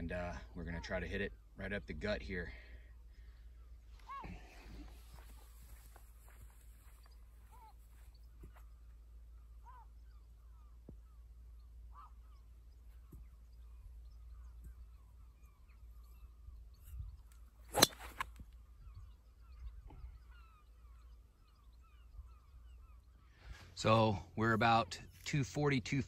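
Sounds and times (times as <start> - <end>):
faint bird calls: 2.4 - 24.4
golf driver striking ball: 17.7 - 18.2.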